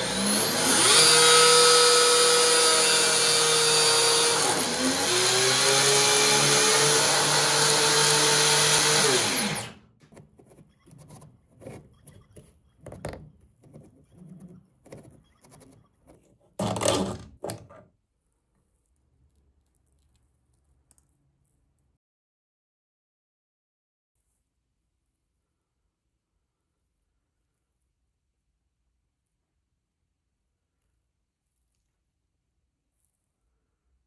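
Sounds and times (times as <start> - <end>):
electric motor whining: 0.0 - 9.8.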